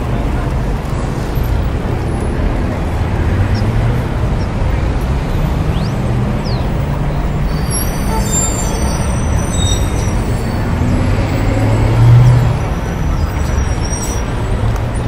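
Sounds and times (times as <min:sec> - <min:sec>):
faint high squeals: 0:07.5 - 0:10.7.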